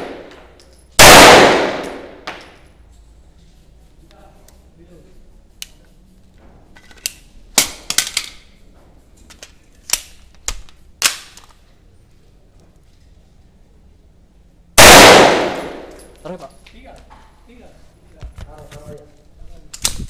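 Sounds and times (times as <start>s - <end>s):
loud pistol shot: 0.0s - 0.3s, 1.0s - 2.4s, 14.8s - 15.9s
pistol reloading clicks: 6.8s - 8.5s, 9.3s - 11.6s, 19.7s - 20.0s.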